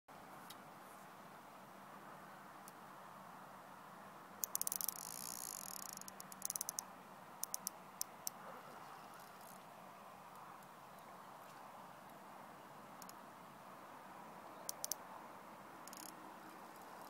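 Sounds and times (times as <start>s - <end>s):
fishing reel clicking and whirring: 4.4s - 6.8s, 7.4s - 7.8s, 14.7s - 15.0s, 15.9s - 16.2s.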